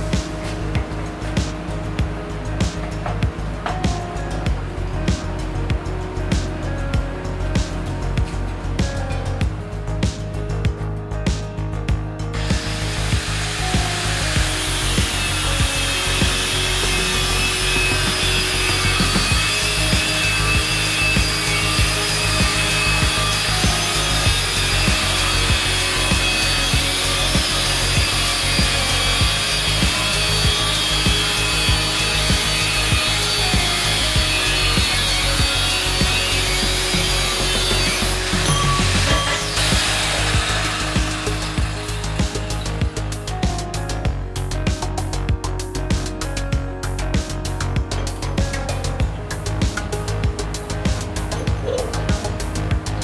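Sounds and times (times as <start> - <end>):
angle grinder cutting steel pipe: 12.3 - 44.0, 46.8 - 53.0.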